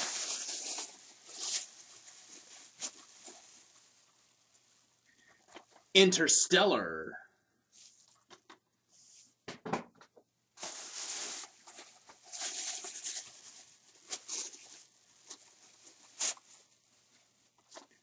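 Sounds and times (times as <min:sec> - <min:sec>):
plastic bag rustling: 0:00.0 - 0:05.9, 0:10.6 - 0:18.0.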